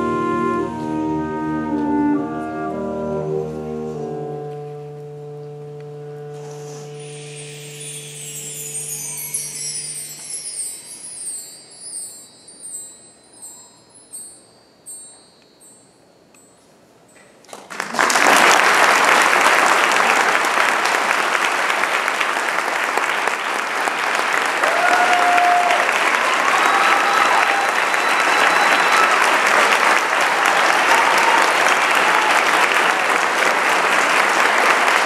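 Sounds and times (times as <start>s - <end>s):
concert band playing: 0.0s - 11.4s
high metal chimes ringing: 6.4s - 17.4s
audience applause: 17.5s - 35.0s.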